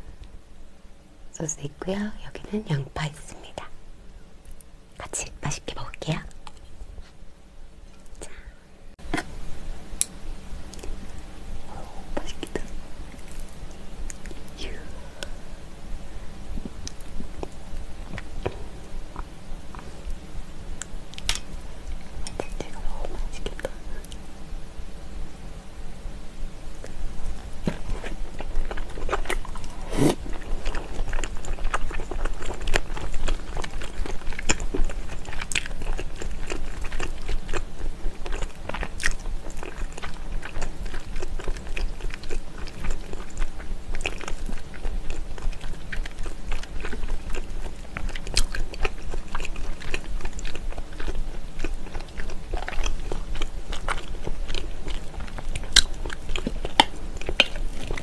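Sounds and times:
close-miked chewing: 0:10.6 - 0:15.4, 0:16.3 - 0:20.2, 0:26.8 - 0:58.0
small crunches: 0:26.8 - 0:58.0.

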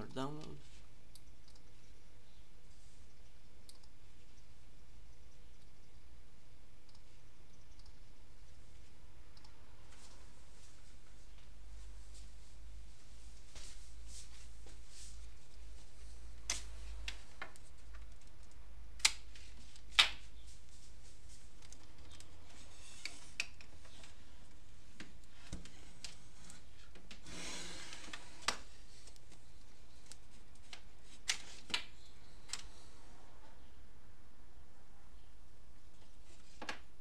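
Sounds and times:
background hiss: 0:00.0 - 0:37.0.

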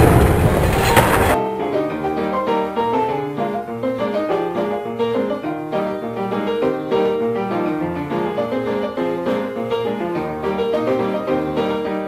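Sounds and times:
piano music with quick notes: 0:00.0 - 0:12.0.

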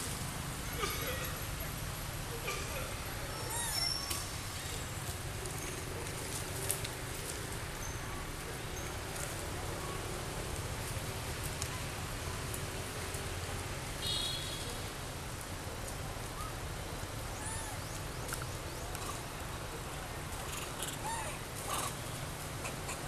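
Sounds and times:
steady outdoor hiss: 0:00.0 - 0:23.0
macaques squeaking and chirping: 0:03.3 - 0:04.2.

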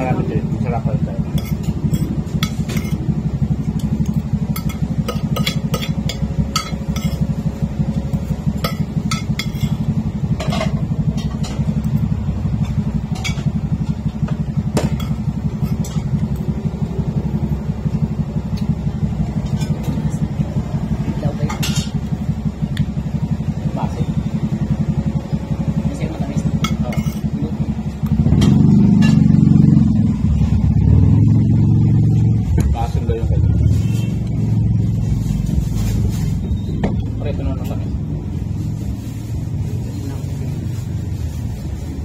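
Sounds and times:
engine rumbling: 0:00.0 - 0:42.0
cutlery clinking on plates: 0:04.6 - 0:07.3.

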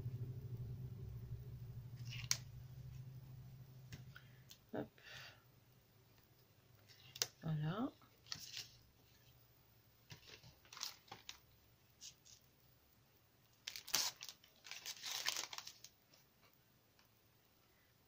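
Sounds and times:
paper and plastic crinkling: 0:02.0 - 0:02.4, 0:08.2 - 0:09.3, 0:10.1 - 0:12.4, 0:13.6 - 0:16.3.

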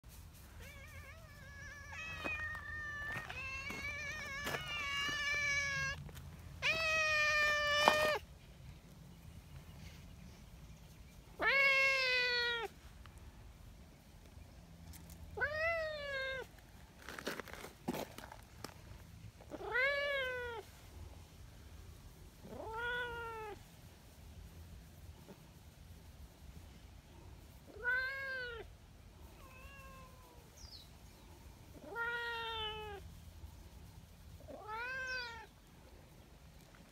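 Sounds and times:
faint rustling: 0:00.0 - 0:11.9
cat meowing loudly: 0:00.6 - 0:06.0, 0:06.6 - 0:08.2, 0:11.4 - 0:12.7, 0:15.4 - 0:16.5, 0:19.5 - 0:20.6, 0:22.4 - 0:23.6, 0:27.7 - 0:28.7, 0:29.4 - 0:30.5, 0:31.8 - 0:33.0, 0:34.5 - 0:35.5.

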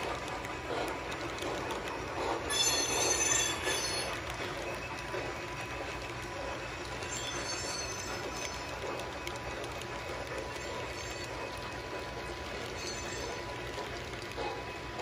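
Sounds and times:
model train rolling on track: 0:00.0 - 0:15.0
high wheel squeal: 0:02.5 - 0:04.2.

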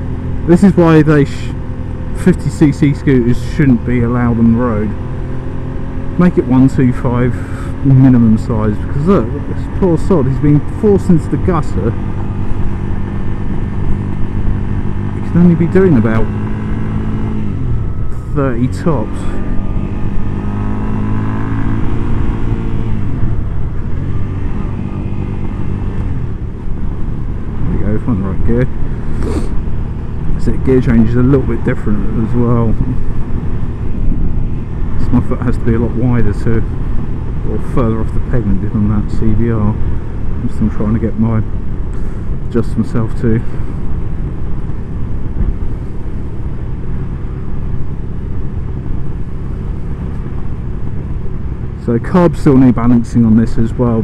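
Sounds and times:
motorcycle engine running: 0:00.0 - 0:54.0
wind rushing over microphone: 0:19.0 - 0:38.8.

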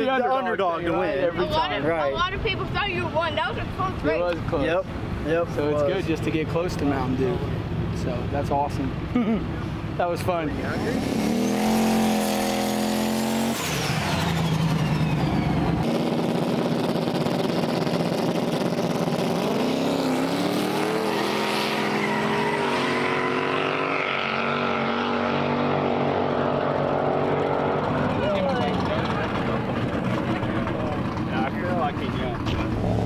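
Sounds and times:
drag car engines revving: 0:07.4 - 0:33.0.

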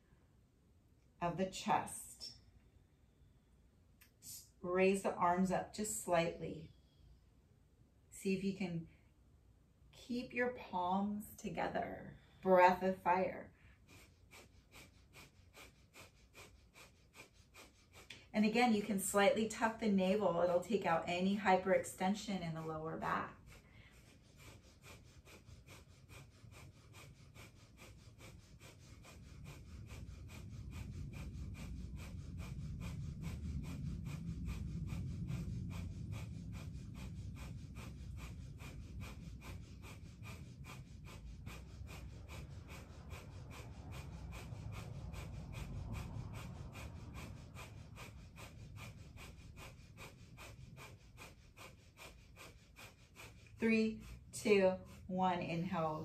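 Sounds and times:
rapid breathing through nose: 0:11.8 - 0:56.0.

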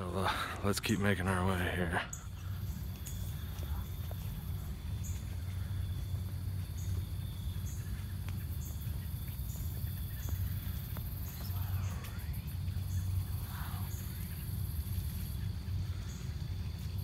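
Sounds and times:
faint high insect trill: 0:00.0 - 0:17.0
insect high chirp: 0:00.0 - 0:17.0
low steady rumble: 0:00.0 - 0:17.0.

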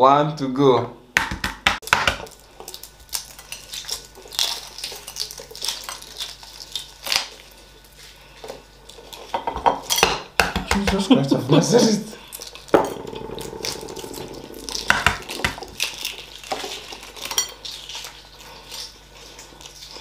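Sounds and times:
eggshells cracking: 0:12.3 - 0:18.1.

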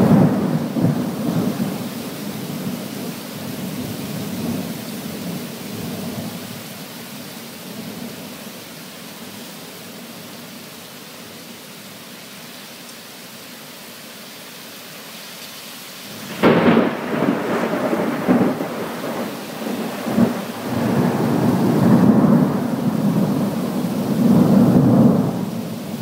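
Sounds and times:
thunderclap rumbling: 0:00.0 - 0:04.7, 0:16.2 - 0:26.0
torrential rain hissing: 0:00.0 - 0:26.0.

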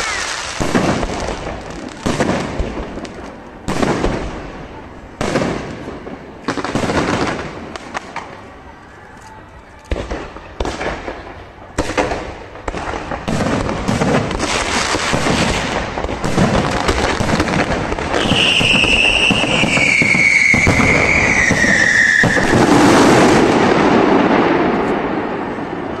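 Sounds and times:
fireworks bursts: 0:00.0 - 0:26.0
high whistle falling in pitch: 0:18.3 - 0:22.5.

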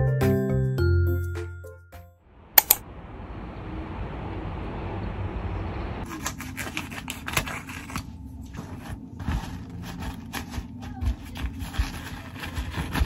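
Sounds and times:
plastic wrapping rustling: 0:06.1 - 0:13.0.

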